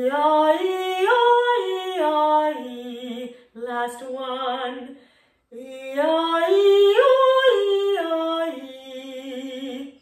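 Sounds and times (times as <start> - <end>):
woman singing vocal warm-up: 0.0 - 10.0.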